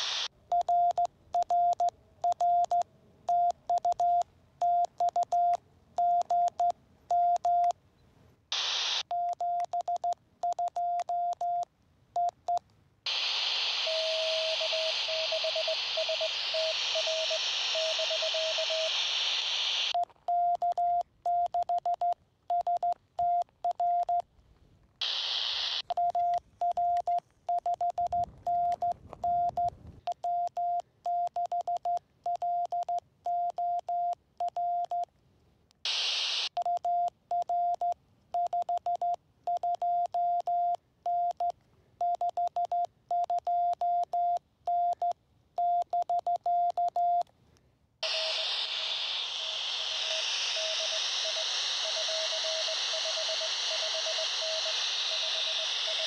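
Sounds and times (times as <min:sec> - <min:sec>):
radio receiver hiss: 0:00.0 - 0:00.3, 0:08.5 - 0:09.1, 0:13.1 - 0:20.0, 0:25.0 - 0:26.0, 0:35.8 - 0:36.6, 0:48.0 - 0:56.0
morse code tone: 0:13.8 - 0:19.0, 0:25.9 - 0:35.0, 0:49.8 - 0:56.0.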